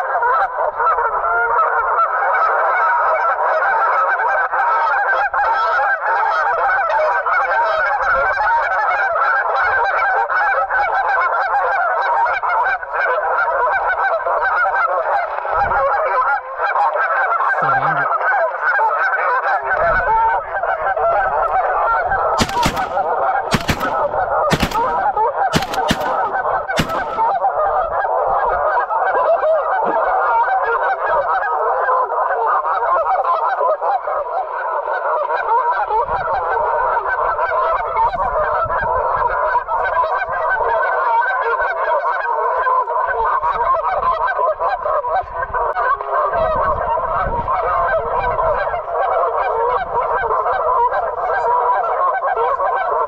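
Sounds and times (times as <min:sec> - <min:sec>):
flock of geese honking: 0:00.0 - 0:53.0
shotgun blasts: 0:22.3 - 0:27.5.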